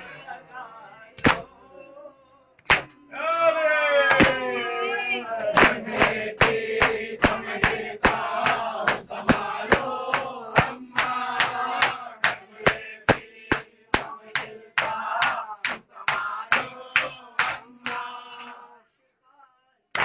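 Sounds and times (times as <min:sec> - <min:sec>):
men chanting a lament: 0:00.0 - 0:19.6
group slapping chests: 0:01.2 - 0:01.5, 0:02.6 - 0:03.0, 0:04.0 - 0:04.6, 0:05.4 - 0:18.7.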